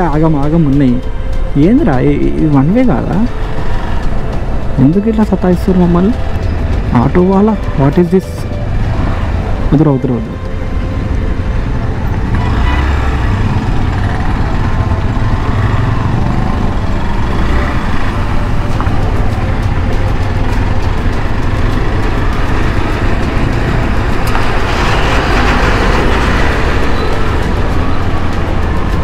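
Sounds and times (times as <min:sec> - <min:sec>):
road and wind noise: 0:00.0 - 0:29.0
motorcycle engine running: 0:11.9 - 0:29.0.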